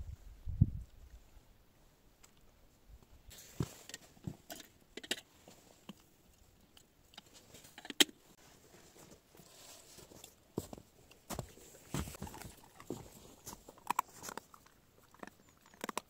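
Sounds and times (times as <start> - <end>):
footsteps crunching on snow: 9.5 - 14.3
dog eating meat: 12.2 - 16.0.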